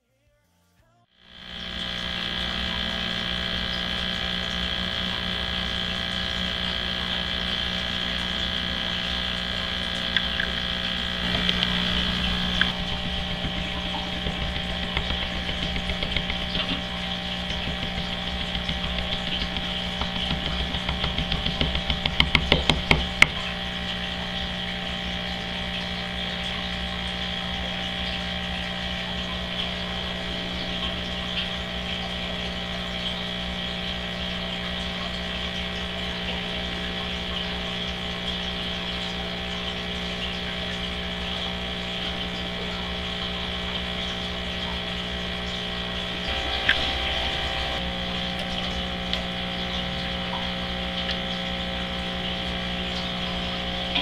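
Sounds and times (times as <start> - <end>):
aquarium pumps humming: 1.1 - 54.0
running water: 1.2 - 54.0
sharp ticks: 1.4 - 23.4.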